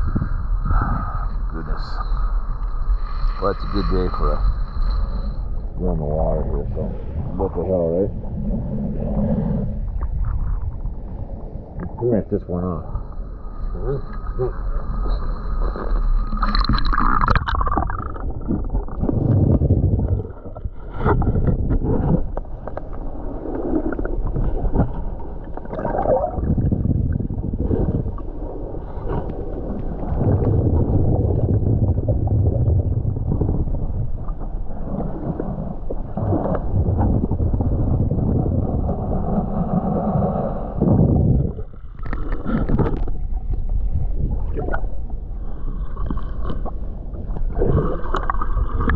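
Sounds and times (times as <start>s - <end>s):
muffled underwater water sloshing: 0.0s - 48.9s
water splashing: 14.8s - 33.7s, 41.5s - 48.9s.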